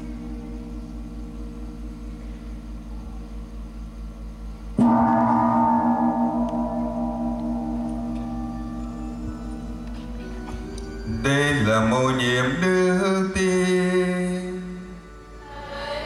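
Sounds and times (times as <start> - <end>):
deep gong ringing: 4.8 - 15.0.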